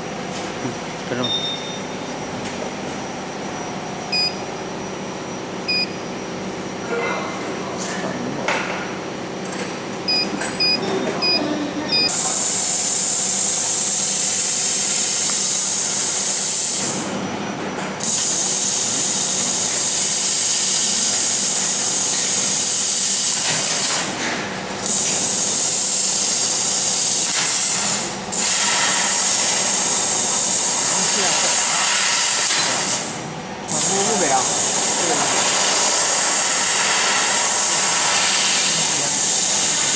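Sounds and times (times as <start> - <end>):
steady machine hum: 0.0 - 39.9
short control panel beeps: 1.2 - 2.0, 4.1 - 4.4, 5.7 - 6.0, 10.1 - 12.2
loud hiss of assist gas: 12.2 - 17.0, 25.4 - 33.1, 33.8 - 39.9.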